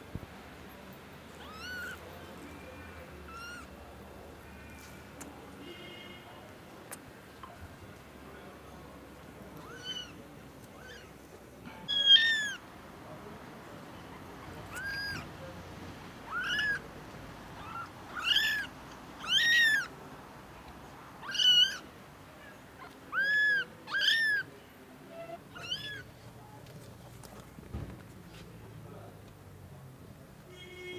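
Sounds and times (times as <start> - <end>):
kittens mewing: 1.4 - 2.0, 2.6 - 3.7, 9.6 - 10.2, 10.8 - 11.2, 11.9 - 12.6, 14.4 - 15.3, 16.2 - 16.8, 17.6 - 19.9, 21.2 - 24.5, 25.2 - 26.1.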